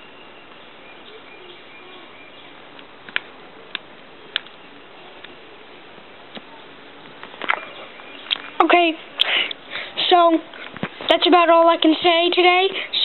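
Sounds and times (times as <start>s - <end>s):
steady hiss: 0.0s - 13.0s
sharp clicks: 2.8s - 4.6s.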